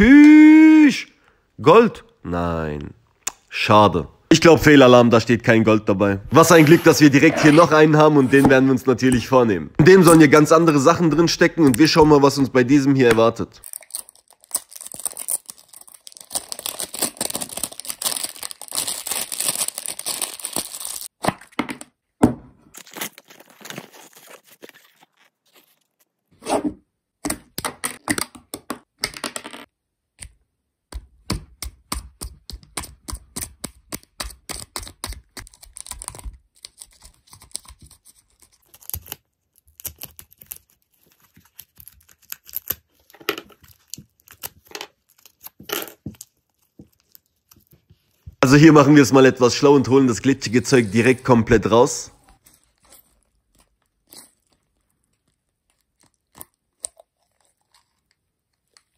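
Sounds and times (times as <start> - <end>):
foil wrapping tearing and crinkling: 13.6 - 21.1, 22.8 - 26.1, 38.3 - 47.8
plastic packaging crackles and clicks: 13.6 - 21.1, 33.9 - 48.2, 52.6 - 58.9.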